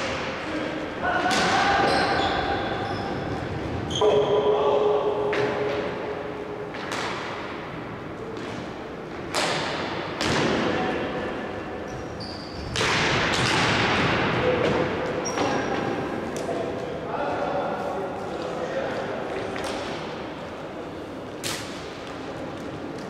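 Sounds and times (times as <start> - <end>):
hockey sticks knocking ball: 6.7 - 7.5.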